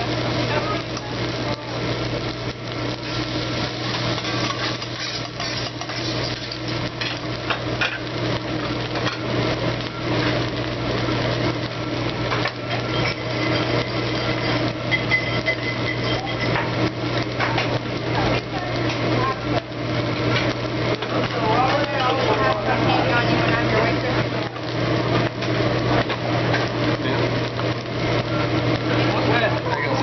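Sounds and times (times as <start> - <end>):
metal spatulas scraping on griddle: 3.0 - 8.1, 12.4 - 16.8.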